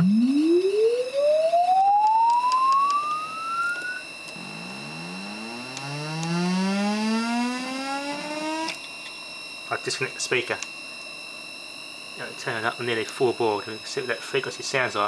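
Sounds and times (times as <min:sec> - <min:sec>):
rising test tone sweep: 0:00.0 - 0:08.8
faint steady high whine: 0:00.0 - 0:15.0.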